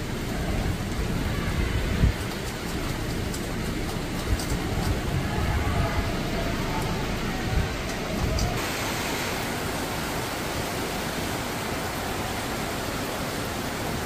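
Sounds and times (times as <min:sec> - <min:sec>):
wind buffeting microphone: 0:00.0 - 0:08.8
heavy rain falling: 0:00.0 - 0:14.0.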